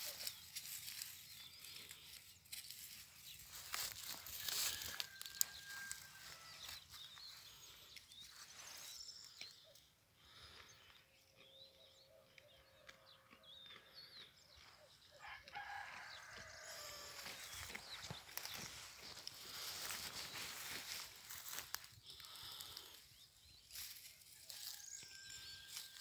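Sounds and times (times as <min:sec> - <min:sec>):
distant chickens: 0:02.9 - 0:26.0
rooster crowing: 0:04.2 - 0:06.8, 0:15.2 - 0:17.5, 0:24.6 - 0:26.0.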